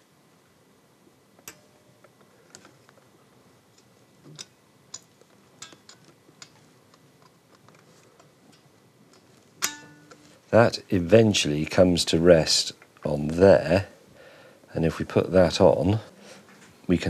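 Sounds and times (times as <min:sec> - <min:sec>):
small metallic clicks: 0:03.8 - 0:10.2.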